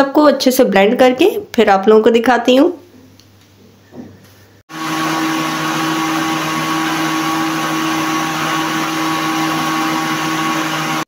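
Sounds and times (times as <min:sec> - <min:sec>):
blender running: 0:04.7 - 0:11.0.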